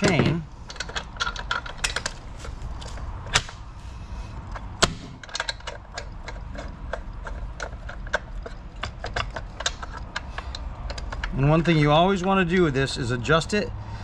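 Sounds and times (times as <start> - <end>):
light metallic clicks and clacks: 4.5 - 12.5
sharp knocks: 4.7 - 5.3.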